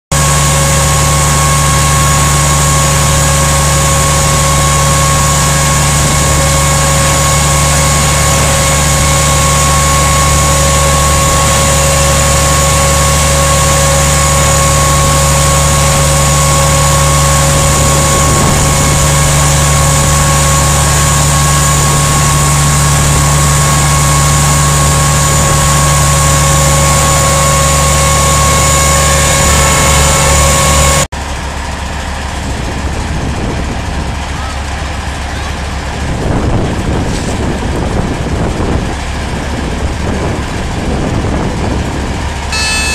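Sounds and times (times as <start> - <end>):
fire truck pump and engine running: 0.1 - 42.9.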